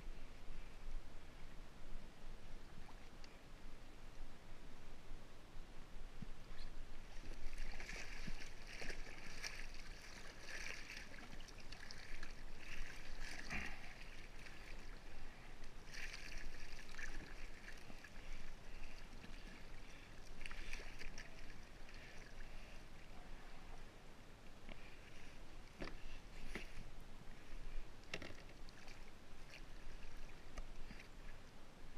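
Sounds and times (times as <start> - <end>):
water splashing against kayak: 6.6 - 22.8.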